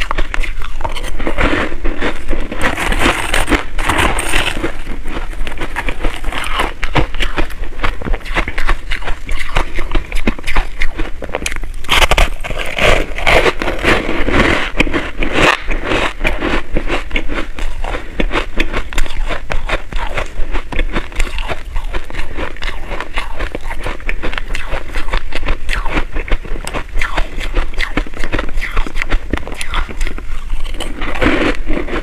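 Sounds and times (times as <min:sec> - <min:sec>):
metal spoon scraping ice: 0:00.0 - 0:07.5, 0:28.5 - 0:32.0
chewing crushed ice: 0:00.0 - 0:32.0.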